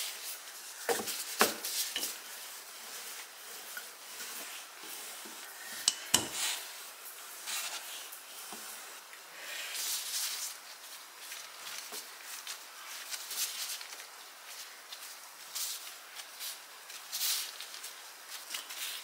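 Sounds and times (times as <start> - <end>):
rolling pin rubbing on dough: 0.0 - 6.8.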